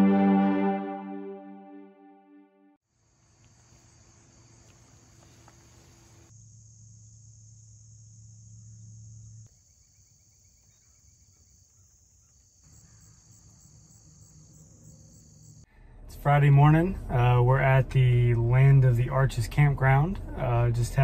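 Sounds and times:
crickets trilling: 3.0s - 15.7s.

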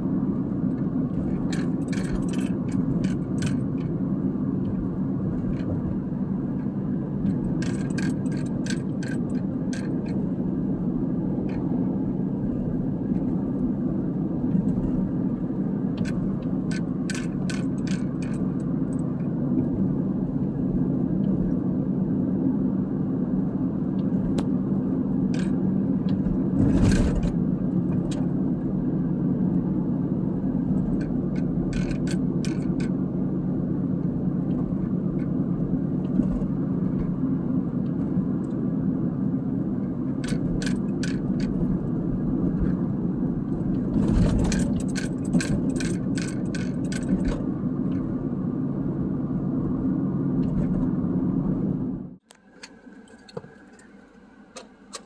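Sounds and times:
road and engine noise: 0.0s - 55.0s
light clicks and rattles: 6.6s - 10.2s.

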